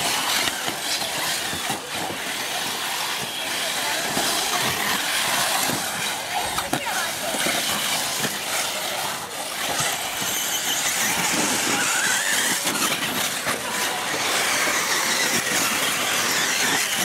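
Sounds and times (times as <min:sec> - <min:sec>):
model car motors whining: 0:00.0 - 0:17.0.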